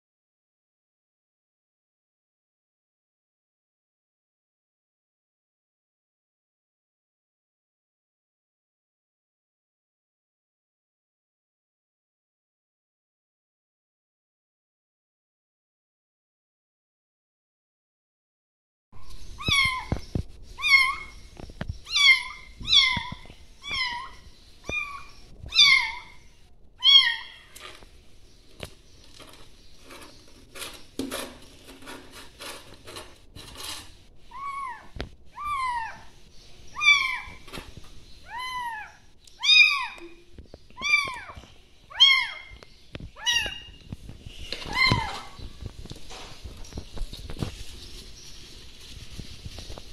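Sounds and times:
rustling: 0:19.0 - 0:35.2, 0:36.0 - 0:49.9.

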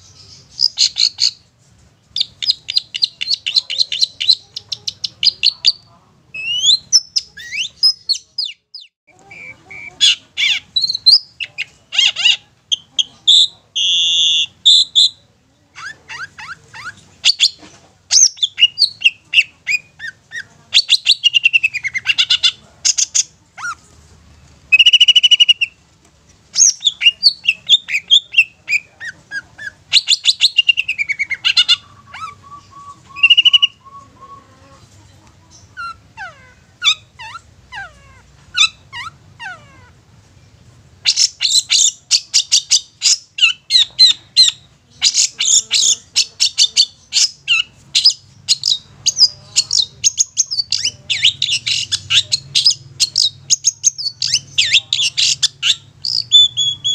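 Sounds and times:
shrike singing: 0:02.2 - 0:15.2, 0:26.5 - 0:34.8, 0:41.0 - 0:56.9.

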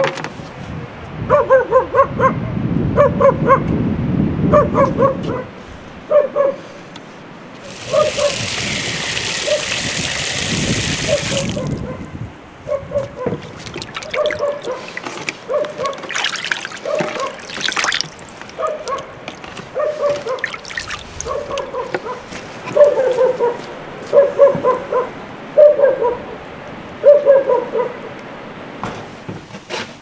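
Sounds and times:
dog barking: 0:01.3 - 0:03.7, 0:04.5 - 0:06.8, 0:07.8 - 0:08.5, 0:09.4 - 0:09.8, 0:11.1 - 0:13.4, 0:14.0 - 0:16.2, 0:16.8 - 0:17.5, 0:18.5 - 0:26.4, 0:27.0 - 0:28.1
hose water splashing into metal bowl: 0:07.6 - 0:11.8, 0:13.5 - 0:21.4.

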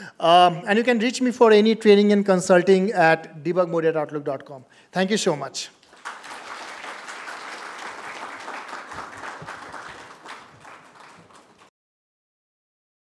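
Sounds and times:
audience applauding: 0:05.8 - 0:11.7.

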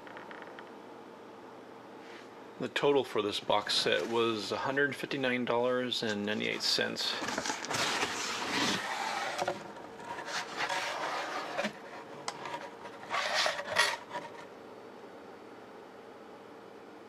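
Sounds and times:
cardboard rubbing and scraping: 0:06.4 - 0:14.4.

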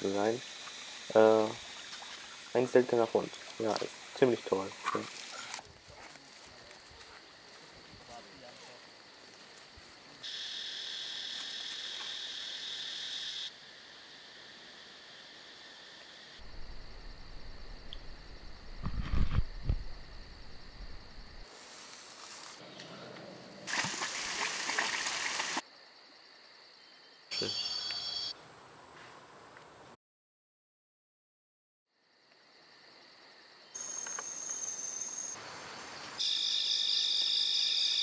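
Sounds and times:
loud hiss: 0:00.0 - 0:03.0
insects shrilling: 0:00.0 - 0:13.6, 0:15.8 - 0:25.6, 0:33.8 - 0:38.0
handheld camera handling thumps: 0:18.7 - 0:19.9.

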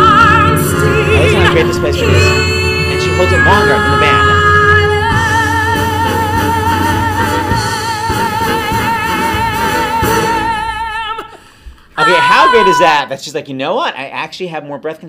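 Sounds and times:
woman singing sustained note: 0:00.0 - 0:10.8
live accompaniment: 0:00.0 - 0:13.0.

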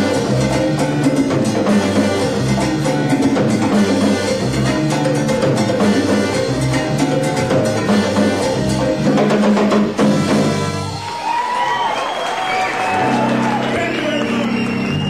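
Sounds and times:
latin percussion knocking: 0:00.0 - 0:10.7
brass section: 0:10.0 - 0:11.1.

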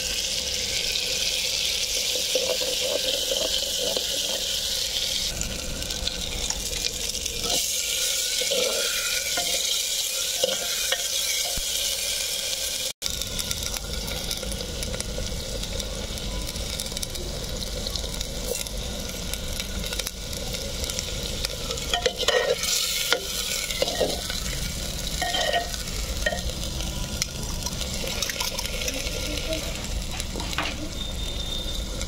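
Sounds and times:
food sizzling in oil: 0:00.0 - 0:32.0
metal spatula scraping a pot: 0:07.4 - 0:12.2, 0:21.9 - 0:26.5.

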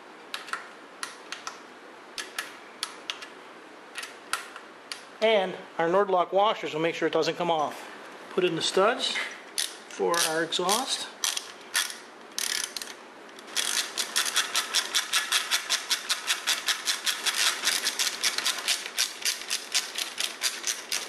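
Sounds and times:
hand ratchet clicking: 0:09.6 - 0:21.0.

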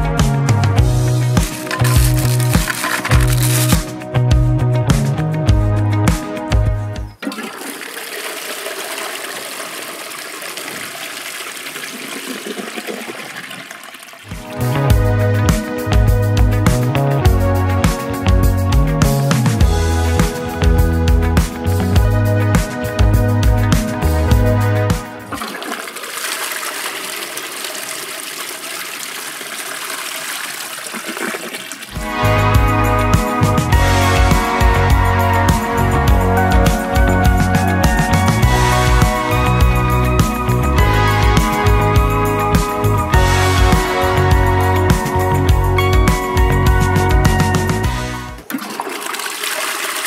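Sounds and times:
toilet flushing: 0:07.1 - 0:14.7, 0:25.2 - 0:36.8, 0:47.3 - 0:50.0.

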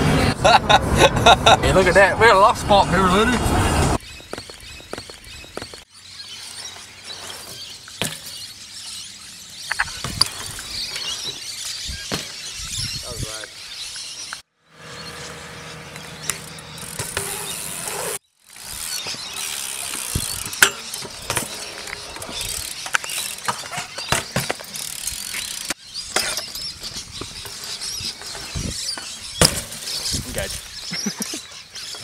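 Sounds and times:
bike clicks and knocks: 0:04.1 - 0:05.9, 0:07.9 - 0:08.5, 0:15.9 - 0:29.9
bike hub ratcheting: 0:16.8 - 0:23.5, 0:24.6 - 0:25.8.

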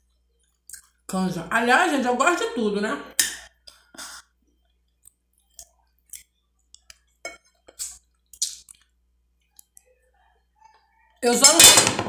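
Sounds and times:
wet mouth smacks and clicks: 0:07.8 - 0:08.9.

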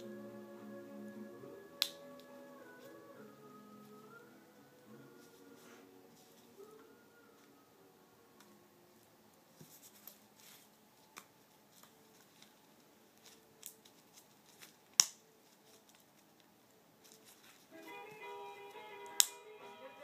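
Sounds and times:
rustling packets: 0:09.6 - 0:19.8.

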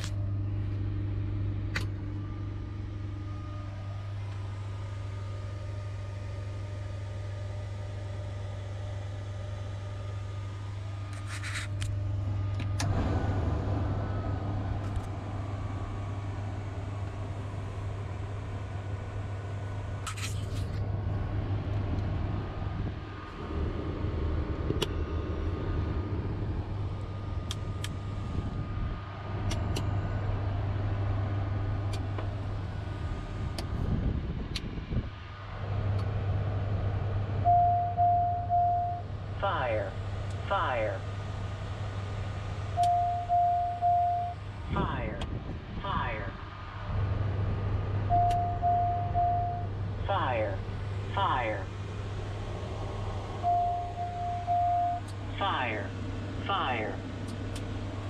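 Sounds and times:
ground power unit humming: 0:00.0 - 0:34.6, 0:35.3 - 0:58.0
rushing noise: 0:12.8 - 0:37.4
cockpit switch clicks: 0:48.2 - 0:48.6.

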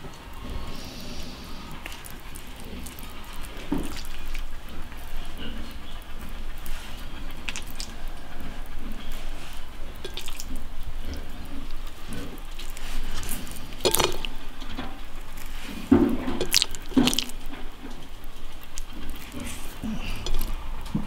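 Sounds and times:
wet meat handled onto skewer: 0:12.1 - 0:18.0.

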